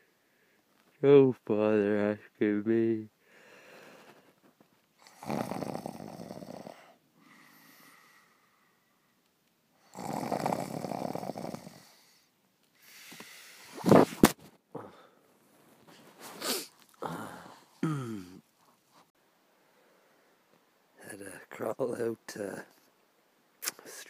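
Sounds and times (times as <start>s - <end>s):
quiet breaths: 0.0s - 1.0s, 3.1s - 13.9s, 14.7s - 21.4s
man snoring: 5.0s - 8.4s, 9.8s - 12.3s, 17.0s - 18.4s.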